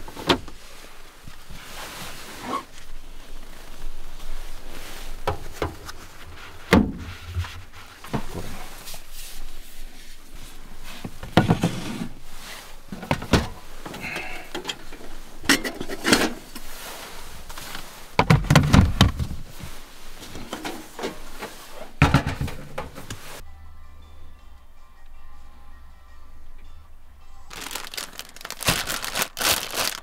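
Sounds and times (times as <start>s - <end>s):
camping gear knocking and clunking: 8.0s - 8.6s, 12.9s - 16.7s, 17.5s - 23.2s.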